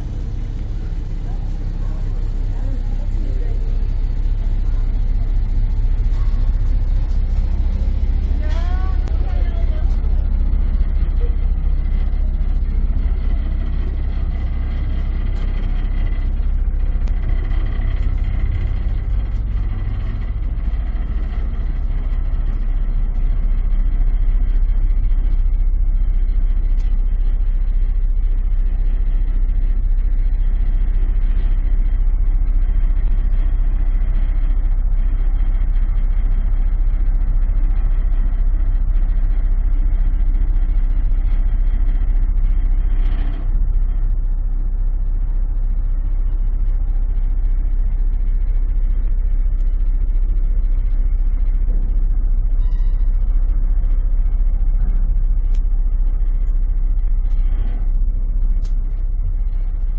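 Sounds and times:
ship engines droning: 0.0s - 59.9s.

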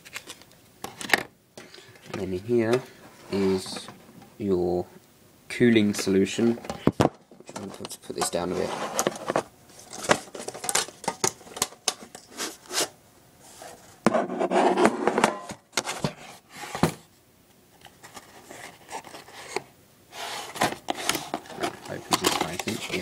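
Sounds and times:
cardboard rubbing and scraping: 8.4s - 9.4s, 12.3s - 15.2s, 18.0s - 23.0s.

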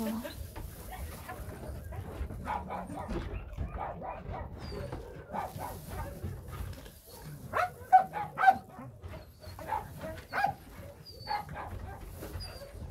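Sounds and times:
dog barking in short yelps: 7.5s - 8.7s.

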